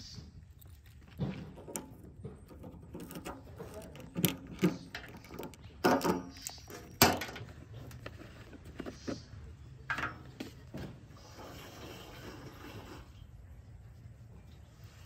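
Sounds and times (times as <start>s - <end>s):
metal fuel cap turning: 1.1s - 9.2s.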